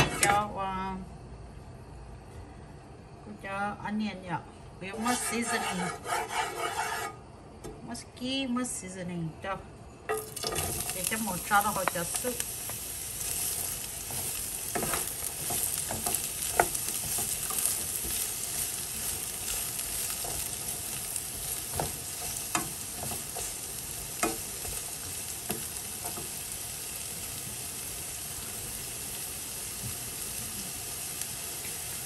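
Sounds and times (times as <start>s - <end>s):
wooden spatula scraping a pan: 4.9s - 7.2s, 10.5s - 26.4s
vegetables sizzling in oil: 10.1s - 32.0s.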